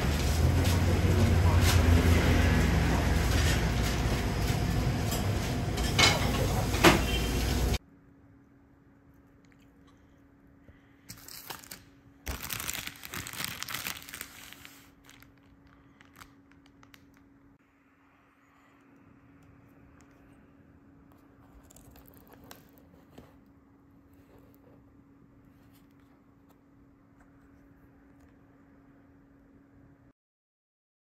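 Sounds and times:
loud street noise: 0.0 - 7.8
plastic bag crinkling: 11.1 - 17.5, 21.4 - 23.2.

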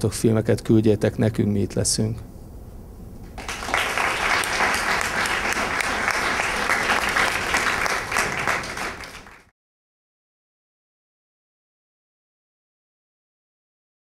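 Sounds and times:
audience applauding: 3.4 - 9.5.

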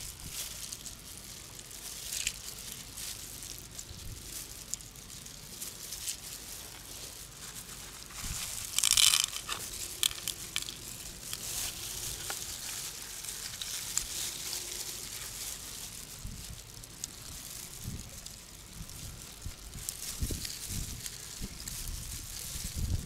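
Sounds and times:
plastic gloves crinkling: 0.0 - 23.0.

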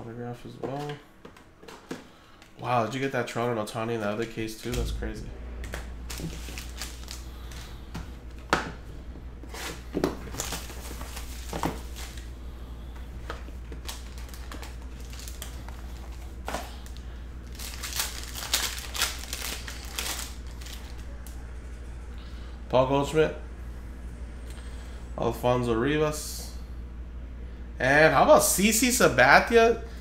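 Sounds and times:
foil wrapper crinkling and tearing: 6.1 - 7.7, 9.5 - 12.2, 13.7 - 21.4.

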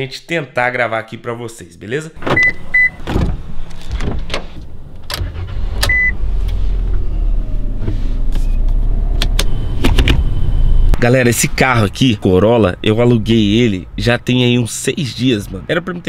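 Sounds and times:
car engine rumbling: 2.2 - 16.0
car remote beeps: 5.9 - 6.2.

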